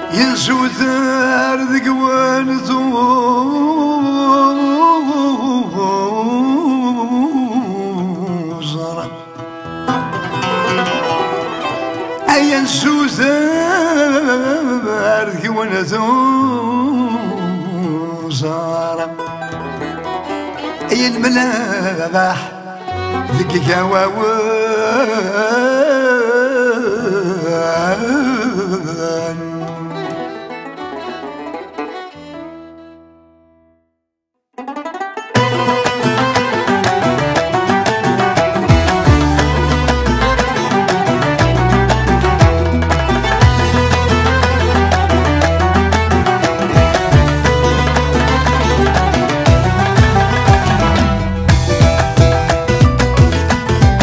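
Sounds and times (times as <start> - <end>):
ornamented melodic line: 9.1 - 14.0, 34.6 - 54.0.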